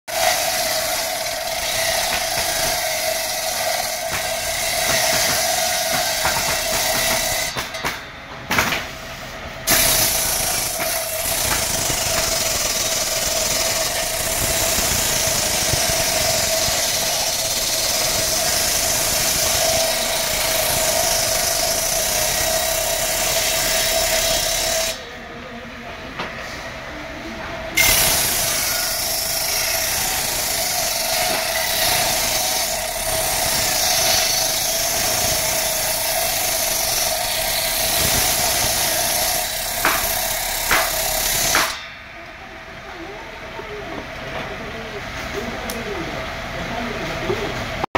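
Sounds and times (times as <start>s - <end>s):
table saw blade whining: 0.1s - 8.1s, 9.7s - 25.2s, 27.8s - 42.0s.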